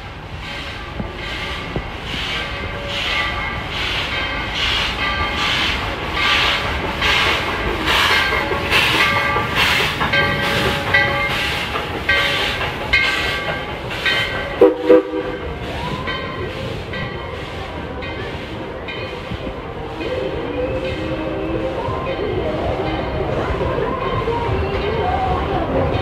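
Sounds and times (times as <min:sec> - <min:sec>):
steam locomotive chuffing: 0:00.0 - 0:26.0.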